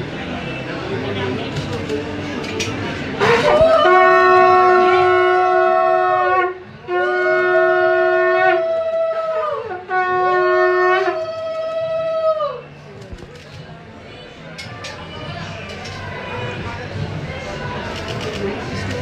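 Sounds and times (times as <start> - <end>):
conch shells blowing: 3.2 - 8.8, 9.7 - 11.8.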